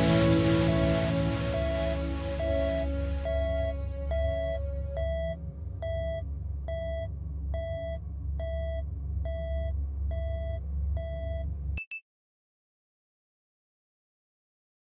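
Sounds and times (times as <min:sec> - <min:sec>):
deep steady rumble: 0:00.0 - 0:11.8
electronic beeping: 0:01.5 - 0:06.2.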